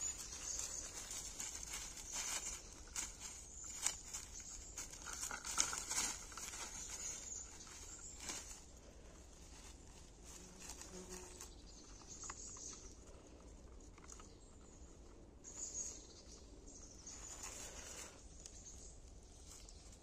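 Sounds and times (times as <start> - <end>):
scratchy scraping and rustling: 0.0 - 12.3, 17.1 - 18.3.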